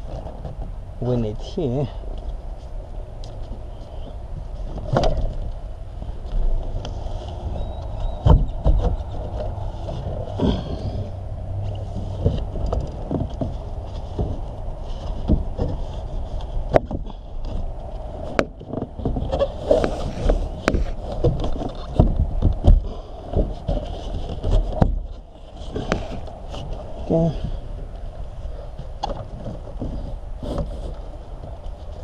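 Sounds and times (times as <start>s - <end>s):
plastic trim rubbing and scraping: 6.1s - 32.0s
heavy thumps: 8.2s - 11.2s, 16.6s - 27.6s.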